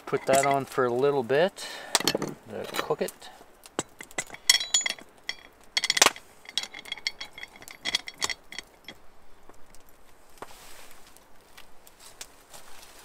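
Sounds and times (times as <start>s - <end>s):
metal hook clinking on pot handle: 0.0s - 0.8s, 1.9s - 9.1s.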